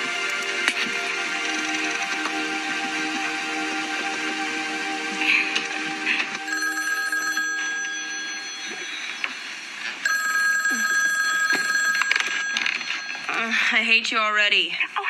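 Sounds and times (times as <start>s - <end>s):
electronic phone ringer: 5.7s - 13.4s.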